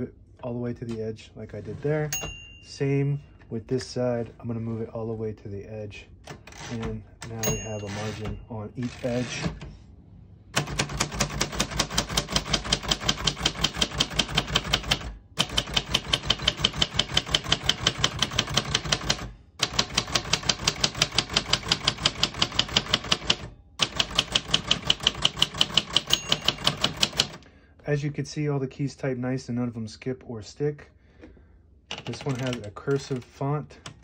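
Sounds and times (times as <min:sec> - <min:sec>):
typewriter keys clacking: 0:10.6 - 0:27.4, 0:31.9 - 0:33.3.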